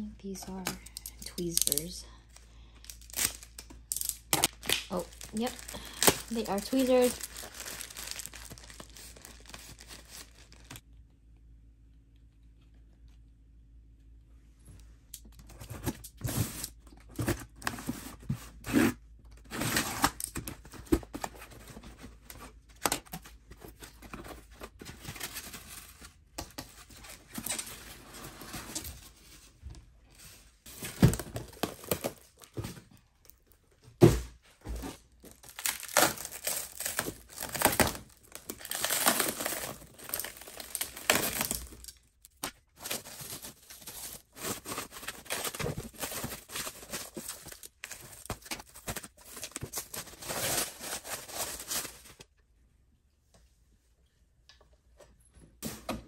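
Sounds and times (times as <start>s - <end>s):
plastic wrap crinkling: 2.9s - 10.8s, 35.1s - 52.2s.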